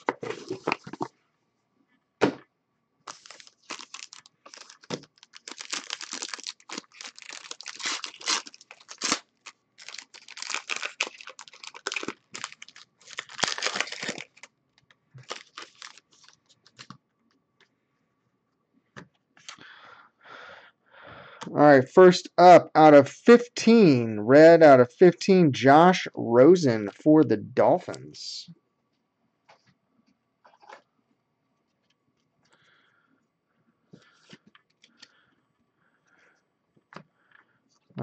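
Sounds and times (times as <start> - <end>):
foil wrapper tearing and crinkling: 3.1 - 14.5, 15.2 - 16.9.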